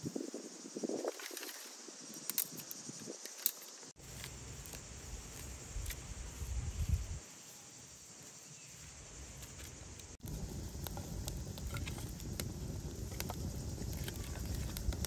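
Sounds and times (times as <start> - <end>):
steady outdoor hiss: 0.0 - 15.0
twigs rustling and clicking: 1.2 - 7.0, 9.3 - 15.0
low rumble: 10.2 - 15.0.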